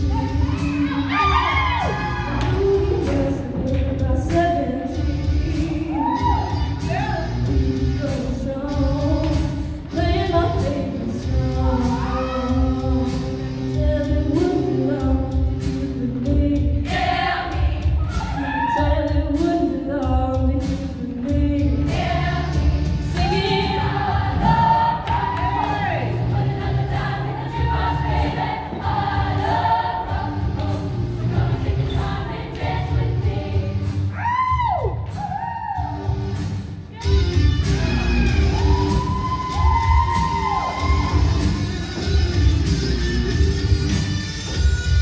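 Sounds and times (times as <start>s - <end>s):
pop backing music with drums: 0.0s - 45.0s
female choir singing: 16.8s - 18.7s, 21.6s - 34.0s.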